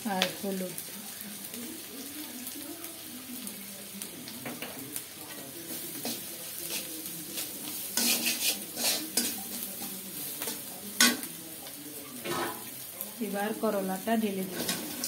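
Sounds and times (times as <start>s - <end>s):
hot oil sizzling: 0.0s - 15.0s
spatula scraping in a pan: 4.5s - 13.0s, 14.3s - 15.0s.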